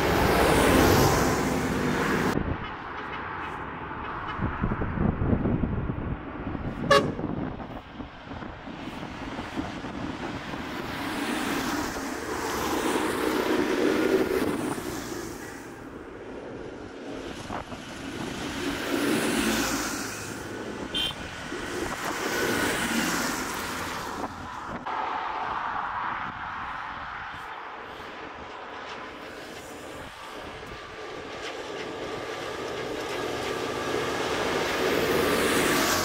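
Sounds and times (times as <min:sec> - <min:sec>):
tractors driving past: 0:00.0 - 0:04.5
tyres on wet road: 0:00.0 - 0:36.0.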